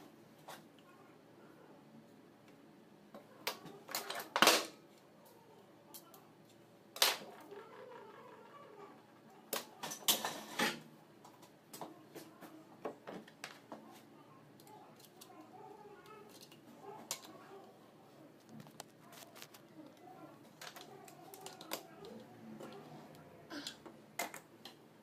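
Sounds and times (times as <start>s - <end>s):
metal tools clicking and scraping: 16.3s - 17.4s.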